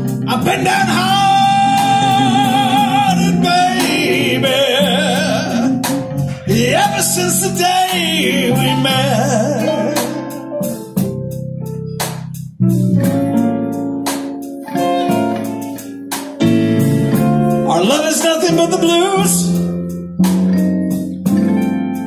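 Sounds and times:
person singing: 0:00.0 - 0:10.7, 0:17.7 - 0:19.6
bass: 0:00.0 - 0:22.0
drums: 0:00.0 - 0:22.0
electric guitar: 0:00.0 - 0:22.0.

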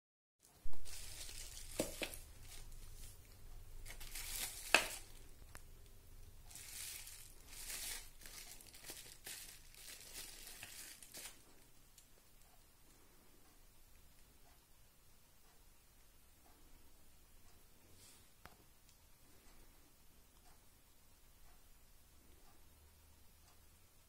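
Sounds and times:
bubble wrap crinkling and rustling: 0:00.5 - 0:05.7, 0:06.4 - 0:12.0.

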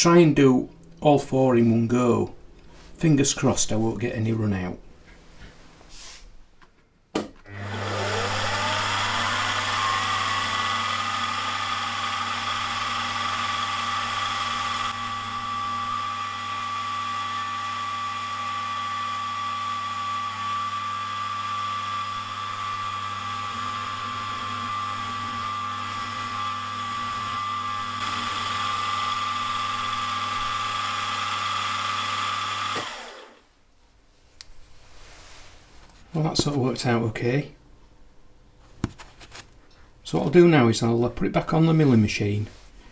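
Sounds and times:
drill boring through steel: 0:07.5 - 0:33.4
milling machine spindle whine: 0:07.5 - 0:33.4.

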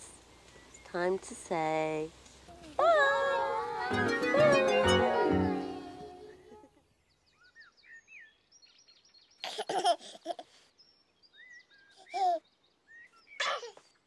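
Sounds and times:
birdsong chirping: 0:03.3 - 0:09.5
baby giggling: 0:09.4 - 0:10.5.

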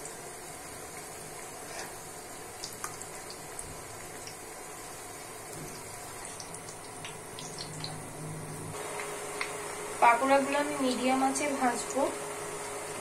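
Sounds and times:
batter sizzling in hot oil: 0:00.0 - 0:13.0
oil popping and crackling: 0:00.9 - 0:08.0.

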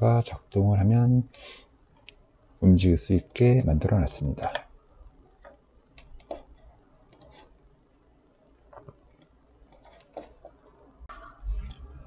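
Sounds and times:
computer mouse clicks: 0:05.4 - 0:06.5, 0:07.1 - 0:07.5, 0:08.5 - 0:10.4.

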